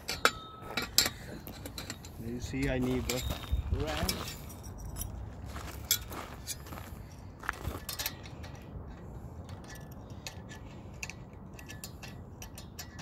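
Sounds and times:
wrench clinking on metal bolt: 0:00.0 - 0:02.2, 0:09.5 - 0:13.0.

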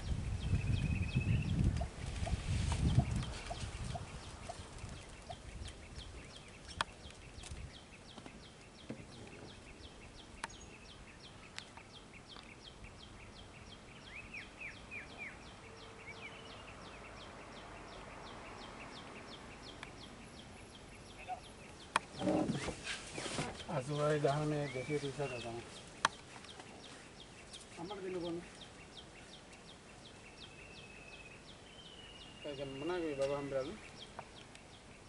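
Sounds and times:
high bird chirps: 0:00.1 - 0:22.6.

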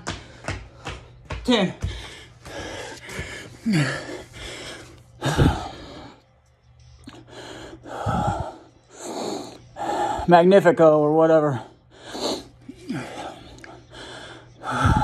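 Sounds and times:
man breathing hard and gasping: 0:01.8 - 0:06.2, 0:07.1 - 0:10.3, 0:11.8 - 0:15.0.

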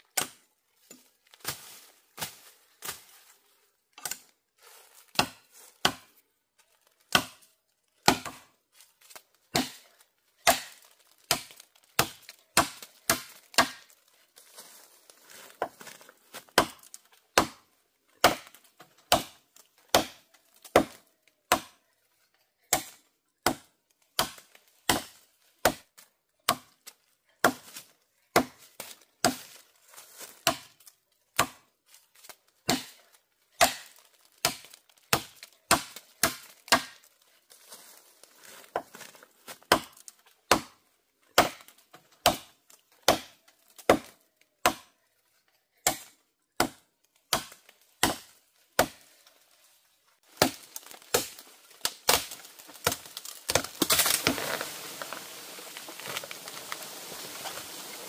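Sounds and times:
blade chopping bamboo: 0:05.1 - 0:06.1, 0:07.1 - 0:07.4, 0:08.0 - 0:08.5, 0:09.5 - 0:14.0, 0:15.6 - 0:21.8, 0:22.7 - 0:26.8, 0:30.3 - 0:30.8, 0:31.4 - 0:33.0, 0:33.6 - 0:37.1, 0:38.6 - 0:44.9, 0:45.8 - 0:49.1, 0:50.2 - 0:58.0.

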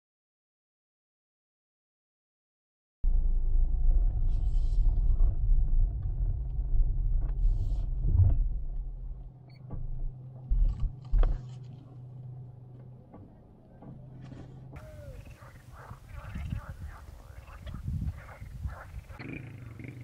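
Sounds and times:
car engine and tyre rumble: 0:03.1 - 0:14.8.

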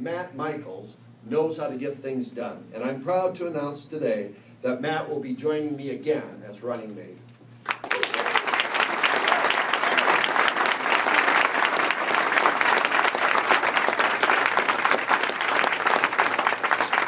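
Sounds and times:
crowd applauding: 0:07.6 - 0:17.0.

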